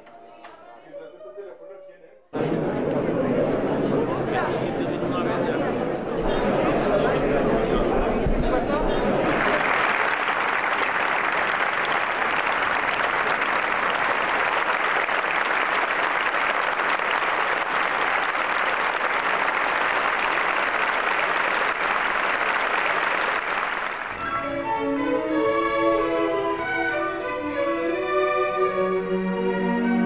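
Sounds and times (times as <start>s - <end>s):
audience applauding: 9.1s - 24.4s
symphony orchestra playing: 24.1s - 30.0s.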